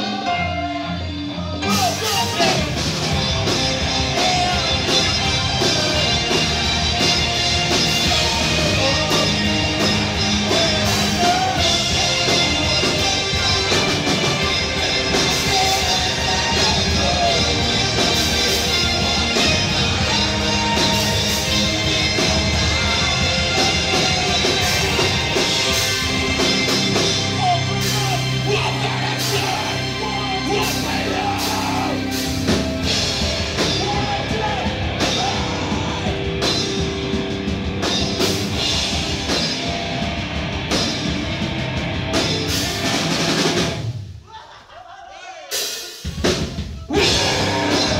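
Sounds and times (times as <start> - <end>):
person singing: 0.0 - 26.7, 27.3 - 32.6, 33.6 - 36.4
electric guitars: 0.0 - 44.1, 46.9 - 47.9
bass guitar: 0.0 - 44.2, 46.1 - 47.9
drum kit: 0.0 - 44.5, 45.5 - 47.9.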